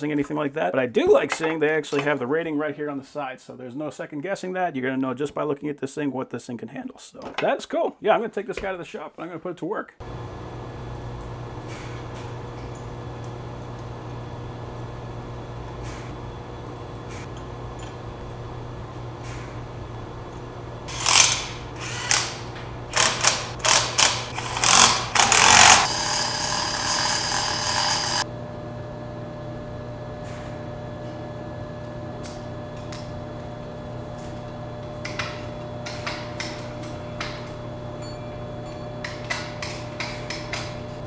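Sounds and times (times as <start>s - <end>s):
mechanical whir: 20.9s - 28.3s.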